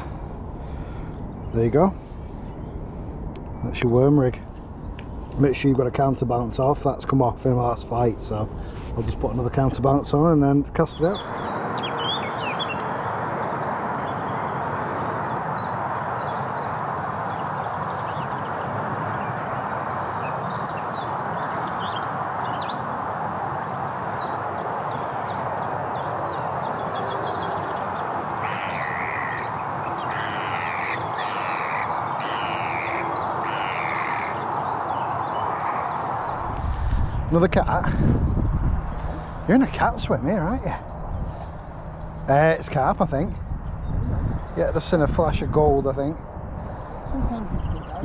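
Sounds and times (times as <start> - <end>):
small birds chirping: 0.0 - 48.0
steady rushing background: 0.0 - 48.0
crow cawing: 26.9 - 36.5.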